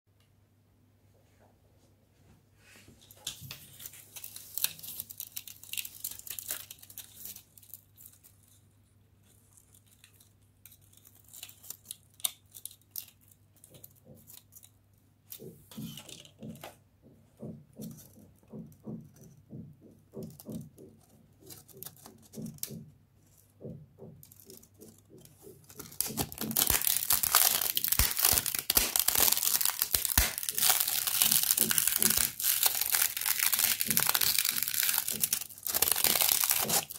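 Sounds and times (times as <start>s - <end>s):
plastic lattice crunching: 3.2s - 14.8s, 24.2s - 36.9s.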